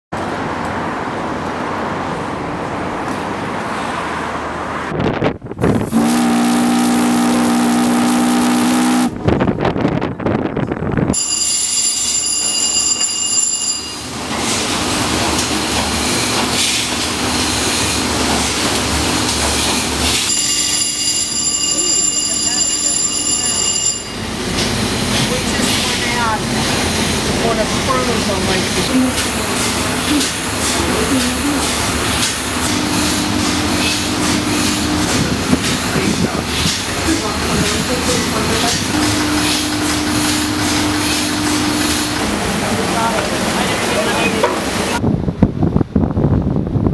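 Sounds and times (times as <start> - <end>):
steam whistle blast: 5.9 - 9.2
engine-room machinery: 22.3 - 45.0.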